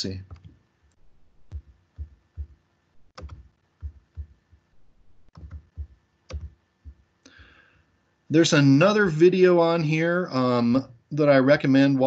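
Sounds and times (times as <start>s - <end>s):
computer mouse clicks: 0.3s - 0.6s, 1.5s - 4.4s, 5.3s - 7.0s.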